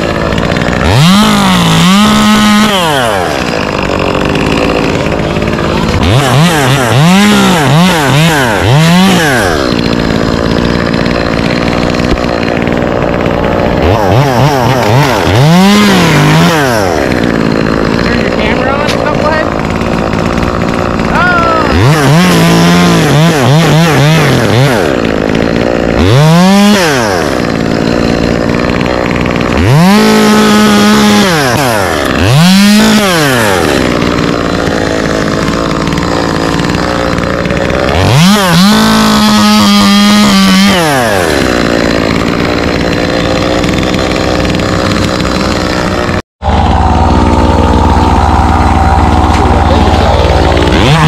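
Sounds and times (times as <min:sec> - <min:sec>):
chainsaw revving: 0:00.0 - 0:51.0
low engine drone: 0:46.4 - 0:51.0.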